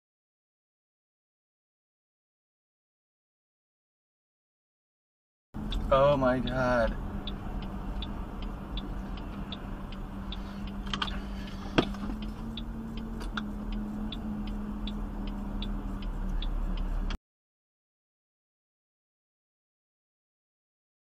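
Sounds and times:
engine hum and road noise: 0:05.6 - 0:17.2
turn signal ticking: 0:05.6 - 0:17.2.

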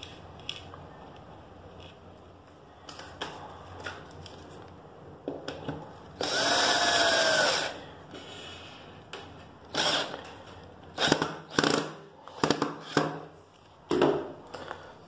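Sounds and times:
cordless drill whining: 0:06.2 - 0:07.8, 0:09.7 - 0:10.2.

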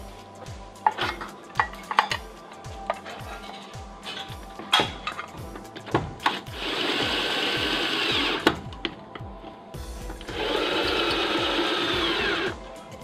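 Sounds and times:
background music with beat: 0:00.0 - 0:13.0
cordless drill whining: 0:06.3 - 0:08.6, 0:10.2 - 0:12.6.

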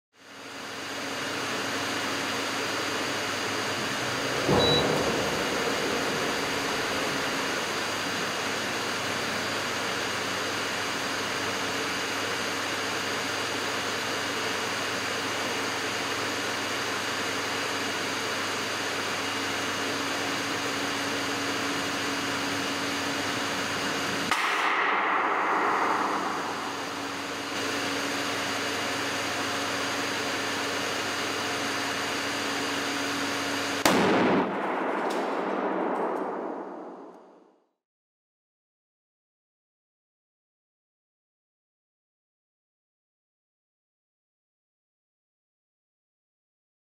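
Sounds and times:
induction cooker hum and whine: 0:00.2 - 0:34.6
loud rushing noise: 0:04.2 - 0:08.5, 0:24.2 - 0:28.5
gas canister bursting bang: 0:24.2 - 0:28.1, 0:33.8 - 0:37.4.

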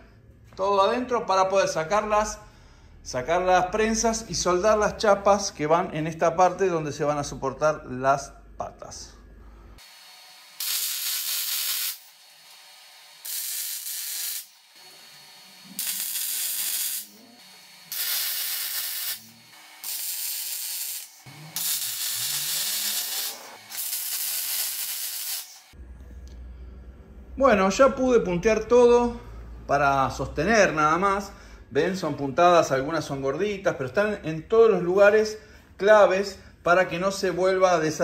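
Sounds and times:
arc welder hissing: 0:09.8 - 0:25.8.

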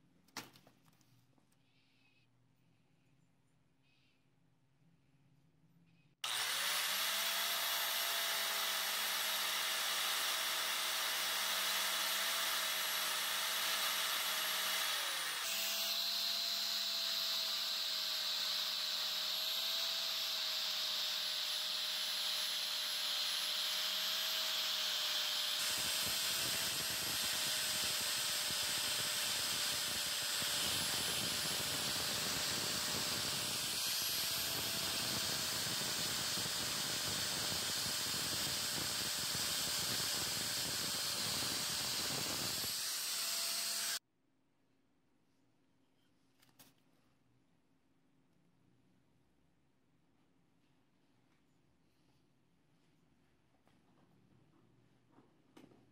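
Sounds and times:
angle grinder whining: 0:06.2 - 0:44.0.

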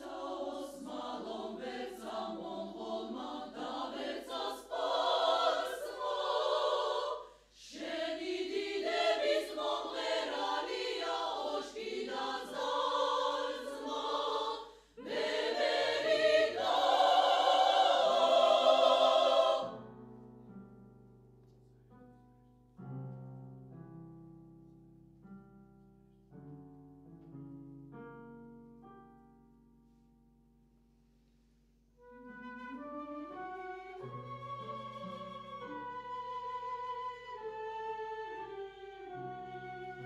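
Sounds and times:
women's choir singing: 0:00.0 - 0:19.8
soft piano: 0:19.7 - 0:40.0.

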